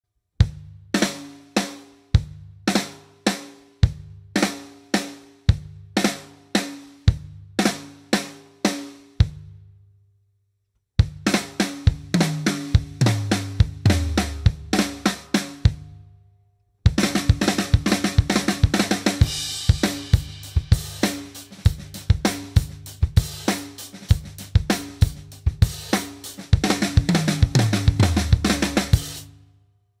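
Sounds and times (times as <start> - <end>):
drum kit groove: 0.4 - 9.6, 11.0 - 15.9, 16.9 - 29.4
drum flams on toms: 11.0 - 15.8, 16.9 - 29.2.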